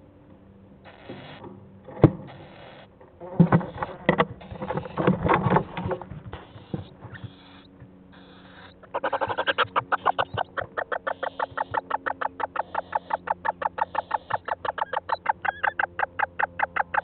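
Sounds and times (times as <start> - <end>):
owls' short hissy calls: 0.8 - 1.4, 2.3 - 2.9, 6.4 - 11.9
owls scuffling in wood shavings: 2.4 - 11.9.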